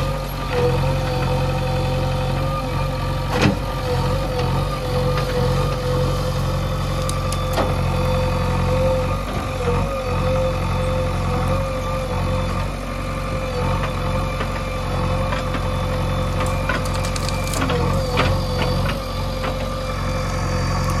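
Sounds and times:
diesel engine running under load: 0:00.0 - 0:21.0
sharp clicks and cracks: 0:07.0 - 0:07.6, 0:16.4 - 0:17.8.

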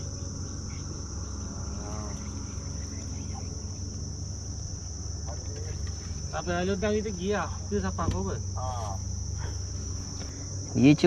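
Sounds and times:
high-pitched insect chorus: 0:00.0 - 0:11.0
low steady rumble: 0:00.0 - 0:11.0.

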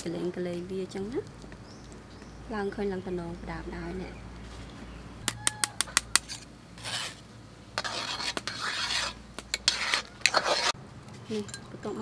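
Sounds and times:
utensil stirring soup in pot: 0:06.1 - 0:10.8.

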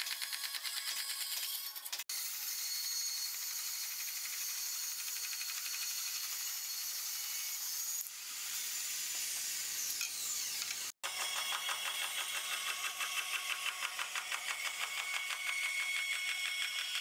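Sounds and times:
bandsaw cutting wood: 0:01.7 - 0:17.0.

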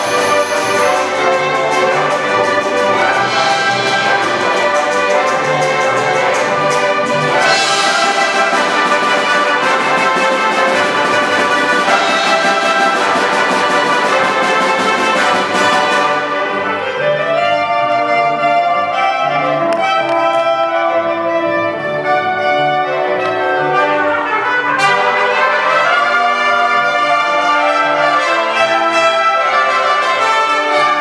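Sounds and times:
percussion strokes: 0:00.0 - 0:17.4
orchestra playing led by brass: 0:00.0 - 0:31.0.

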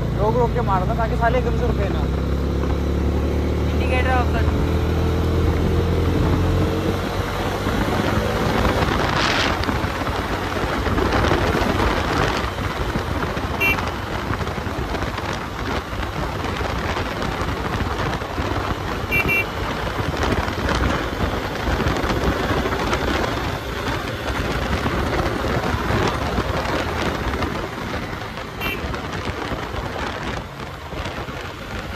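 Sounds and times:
wind rushing over microphone: 0:00.0 - 0:31.9.

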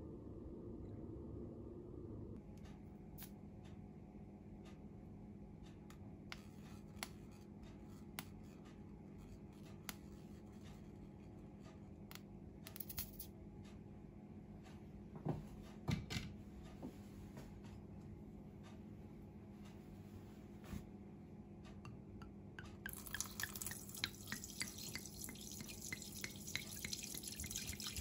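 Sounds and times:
low room hum: 0:00.0 - 0:28.0
honey trickling: 0:22.9 - 0:28.0.

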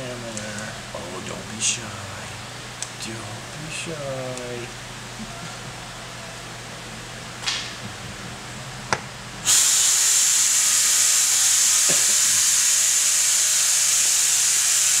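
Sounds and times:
loud steady hiss: 0:09.4 - 0:15.0.

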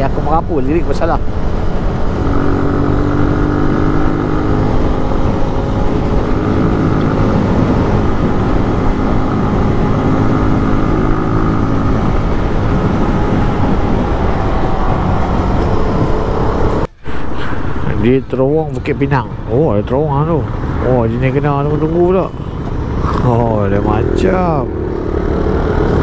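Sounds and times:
wind noise on microphone: 0:01.1 - 0:18.1.

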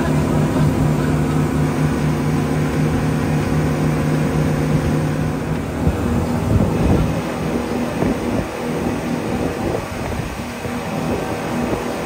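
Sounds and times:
speedboat engine drone: 0:00.0 - 0:12.0
water rushing past boat: 0:00.0 - 0:12.0
wind rushing: 0:02.4 - 0:12.0.

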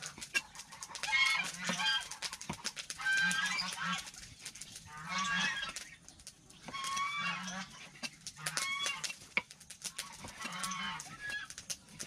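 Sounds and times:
poultry calling: 0:00.0 - 0:04.2, 0:04.8 - 0:05.9, 0:06.6 - 0:09.3, 0:10.0 - 0:11.6.

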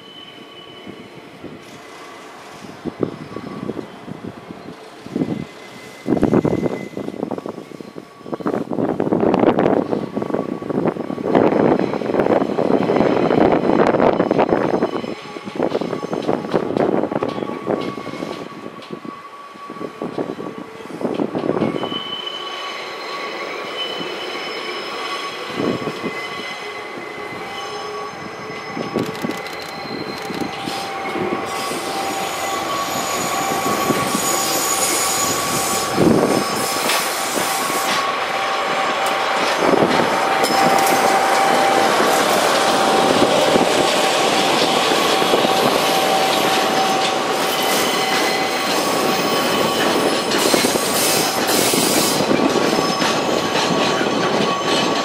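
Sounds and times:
train wheels squealing on track: 0:00.0 - 0:55.0
clanks over rail joints: 0:42.0 - 0:55.0.

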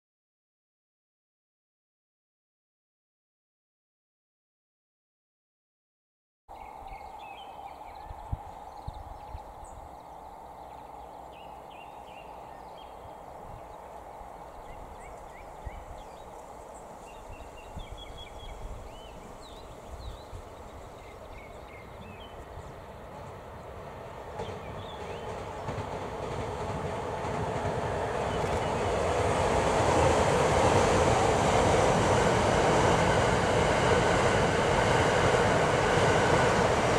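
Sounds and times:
bird chirps: 0:06.5 - 0:23.3
train rumble approaching: 0:06.5 - 0:36.9.

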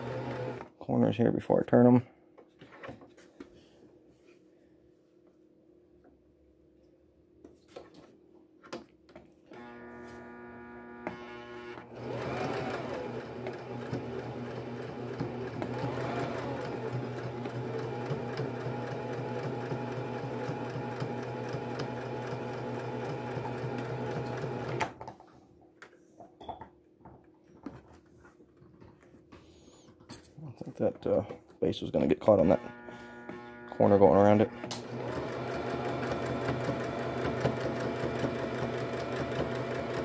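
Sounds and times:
sewing machine stitching: 0:00.0 - 0:00.7, 0:11.0 - 0:25.0, 0:32.4 - 0:40.0.

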